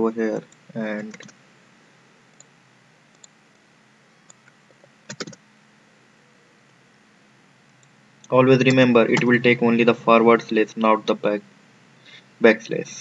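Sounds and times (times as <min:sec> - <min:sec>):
keyboard key clicks: 0:05.1 - 0:05.4.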